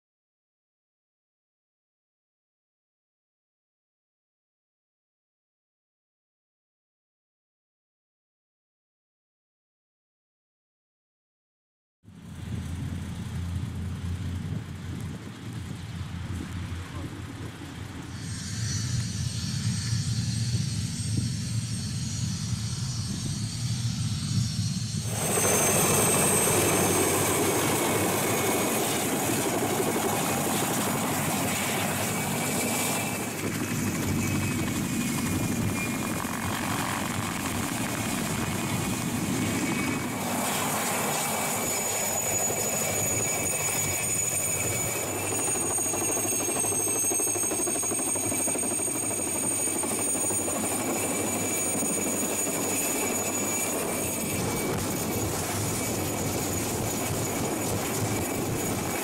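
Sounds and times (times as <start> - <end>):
helicopter engine whine: 12.1 - 59.0
helicopter rotor noise: 12.1 - 59.0.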